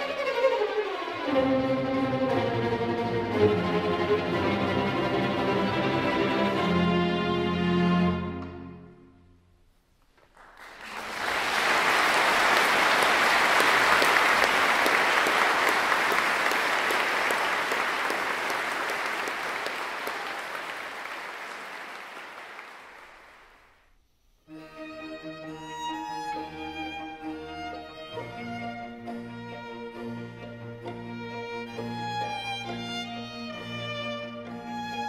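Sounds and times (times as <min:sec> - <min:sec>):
string music: 0:00.0 - 0:09.2, 0:24.4 - 0:35.0
audience applause: 0:10.2 - 0:23.7.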